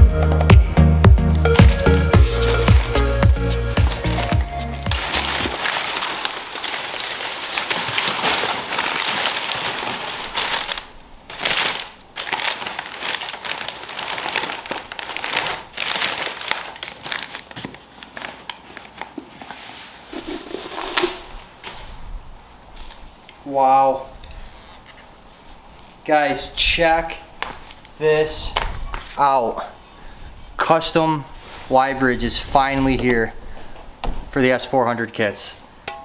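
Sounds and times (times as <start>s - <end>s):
paper crumpling and rustling: 2.2s - 22.0s.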